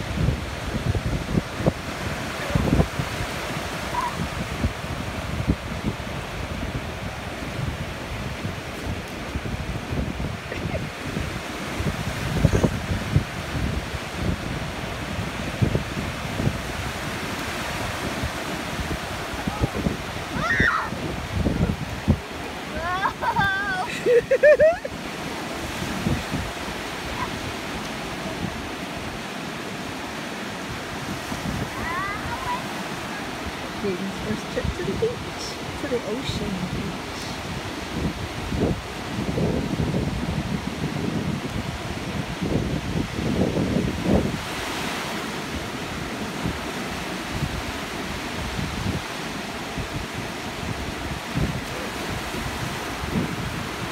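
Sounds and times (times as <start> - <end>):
ocean surf washing on beach: 0.0 - 53.9
wind on microphone: 0.0 - 53.9
child's short high cries: 20.3 - 21.0.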